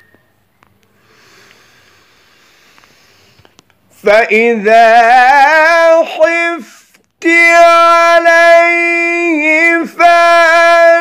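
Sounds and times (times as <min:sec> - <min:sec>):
faint hiss: 0:00.8 - 0:04.1
man chanting melodic recitation: 0:04.0 - 0:11.0.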